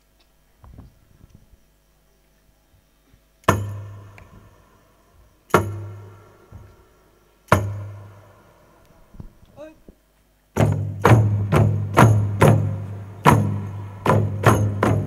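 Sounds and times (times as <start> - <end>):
frame drums struck with booming ring: 3.5 - 4.6, 5.5 - 6.7, 7.5 - 8.5, 10.6 - 15.0.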